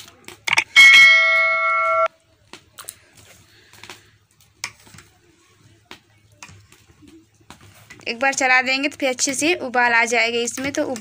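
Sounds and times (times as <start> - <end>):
electronic bell chime: 0.5 - 2.1.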